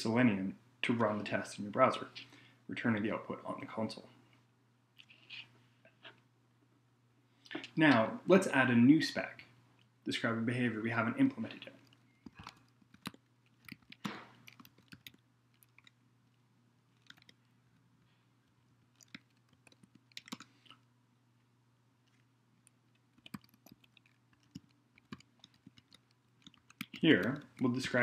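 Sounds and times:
low steady hum: 0.0 - 28.0
typing on a keyboard: 11.8 - 16.0, 17.0 - 17.4, 18.9 - 20.5, 22.1 - 28.0.

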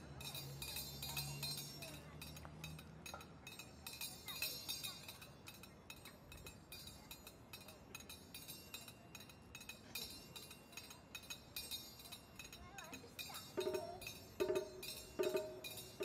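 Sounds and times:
small hand cymbals clinking: 0.0 - 16.0.

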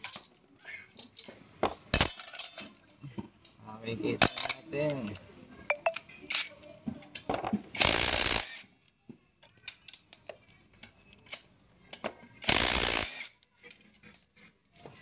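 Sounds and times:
impact wrench bursts: 7.8 - 8.6, 12.4 - 13.3.

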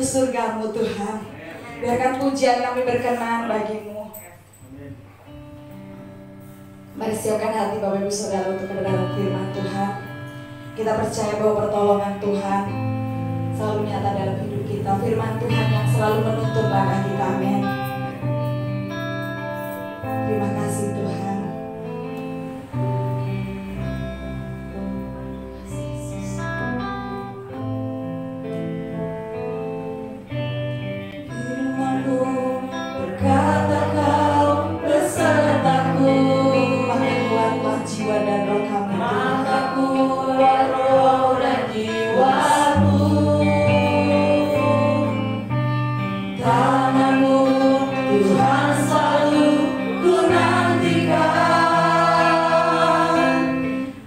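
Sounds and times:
electric guitars: 0.0 - 54.0
keyboard: 2.2 - 54.0
people singing: 31.4 - 45.6, 46.3 - 54.0.

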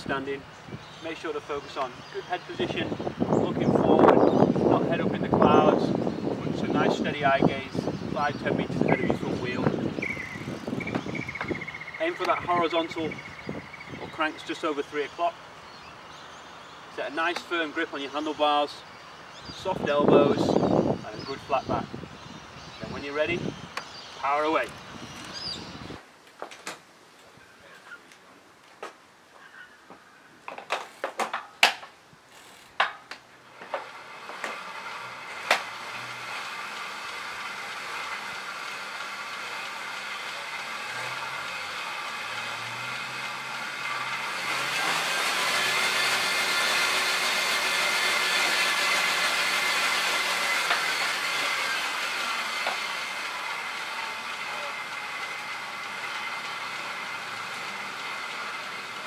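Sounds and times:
bike clicks and knocks: 30.4 - 34.7
tyres whirring on rollers: 32.4 - 59.0.

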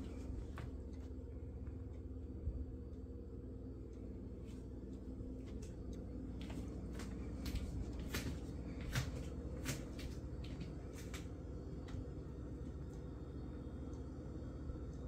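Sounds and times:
footsteps in a house: 0.0 - 1.9, 4.3 - 13.2
steady low hum: 0.0 - 15.0.

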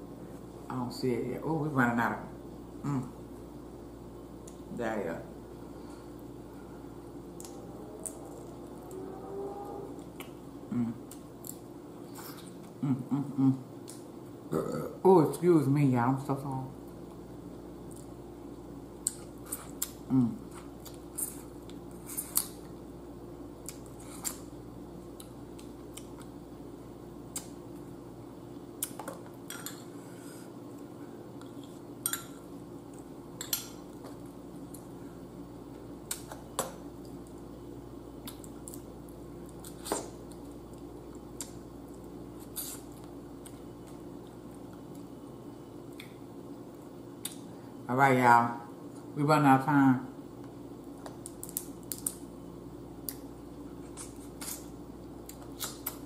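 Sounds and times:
faint hum: 0.0 - 56.0
low falling sound: 7.4 - 10.9
crab shell cracking: 51.0 - 52.2.

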